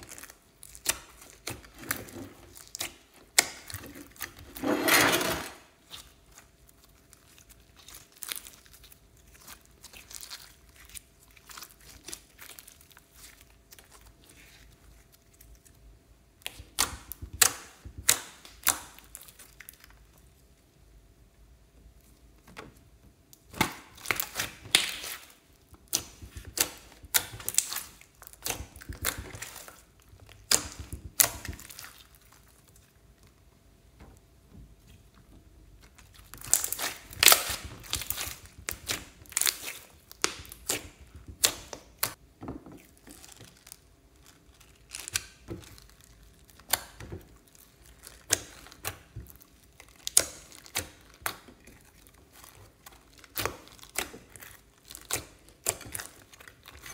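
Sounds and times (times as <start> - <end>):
slime squelching and popping: 16.4 - 20.2, 23.3 - 56.9.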